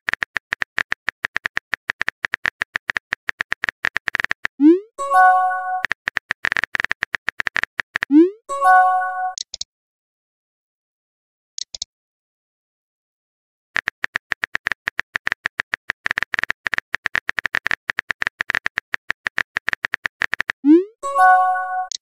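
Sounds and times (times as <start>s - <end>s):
rapid keyboard typing clicks: 0.0s - 4.6s, 5.6s - 8.1s, 13.8s - 20.7s.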